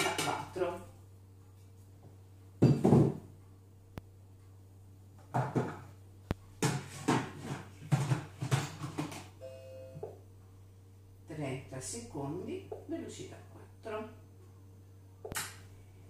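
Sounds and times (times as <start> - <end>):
ceramic plate knocking on table: 2.6 - 3.2.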